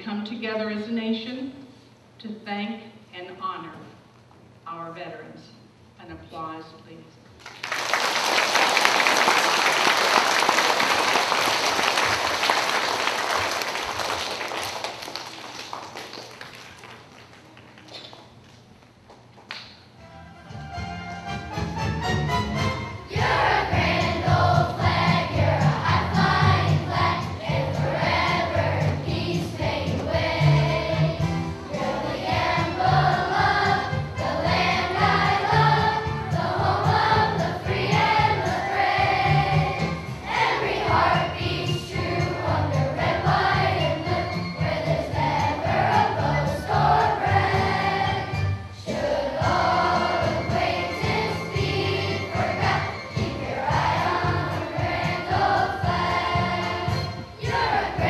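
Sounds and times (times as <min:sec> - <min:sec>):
instrumental accompaniment: 0:20.0 - 0:58.0
children's choir singing: 0:23.0 - 0:58.0.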